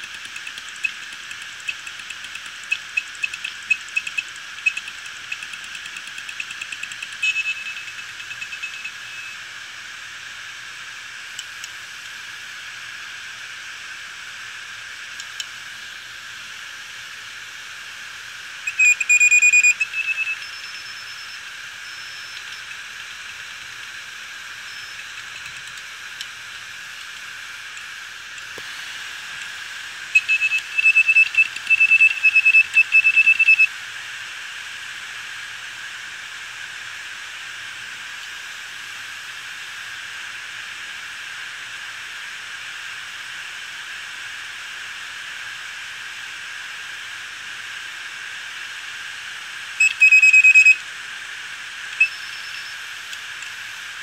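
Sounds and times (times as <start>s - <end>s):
drive head ticking and chirping: 0.0s - 9.4s, 18.7s - 28.6s, 29.4s - 33.7s, 49.8s - 50.8s, 52.0s - 52.8s
hard drive platter whine: 0.0s - 54.0s
high-pitched buzzing burst: 6.2s - 9.4s, 28.4s - 33.7s
faint high beeps: 7.1s - 9.4s, 18.7s - 22.7s, 30.2s - 33.7s, 49.8s - 50.8s, 52.0s - 52.8s.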